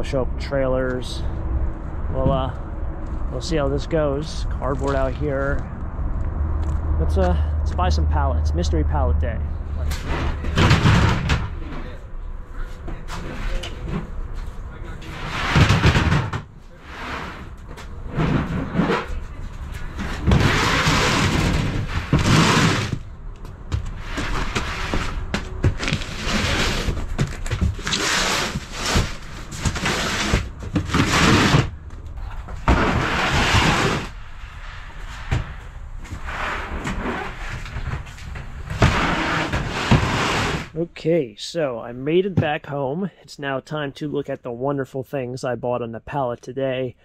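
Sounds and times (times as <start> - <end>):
knocks and thuds of boxes: 10.0 - 12.0, 15.3 - 16.6, 18.2 - 31.8, 32.4 - 34.2, 36.2 - 40.8
boxes scraping across van floor: 12.6 - 23.1, 23.7 - 31.8, 32.4 - 40.8.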